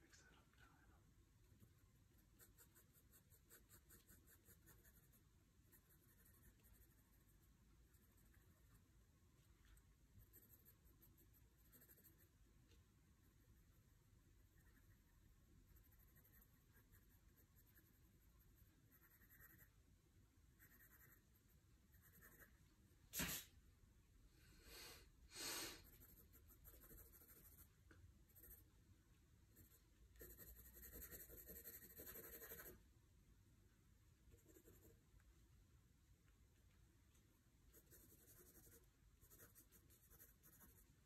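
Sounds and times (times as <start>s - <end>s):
pencil scratching on paper: 1.6s - 8.8s, 10.2s - 12.3s, 13.3s - 19.7s, 20.6s - 22.5s, 25.8s - 27.7s, 28.3s - 28.6s, 29.6s - 32.8s, 34.3s - 35.0s, 37.7s - 40.9s.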